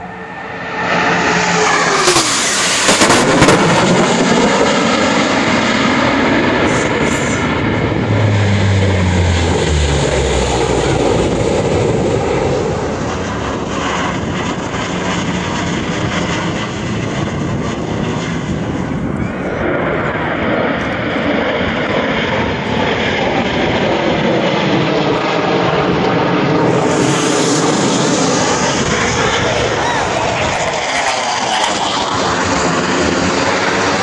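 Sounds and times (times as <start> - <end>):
jet aircraft passing overhead: 0.0 - 34.0
turboprop aircraft drone: 0.0 - 34.0.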